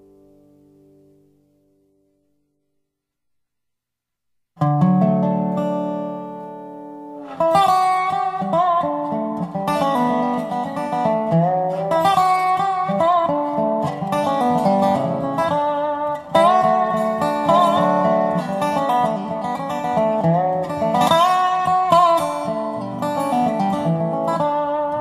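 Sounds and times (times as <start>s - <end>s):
sliding dobro lead line: 7.0s - 25.0s.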